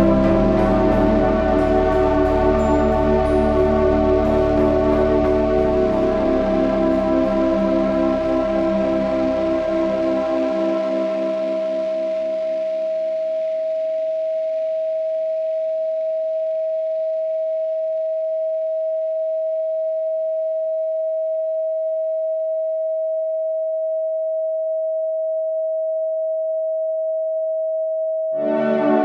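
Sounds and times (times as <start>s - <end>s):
ambient synthesizer music: 0.0s - 13.0s, 28.4s - 29.0s
steady sine tone: 0.0s - 29.0s.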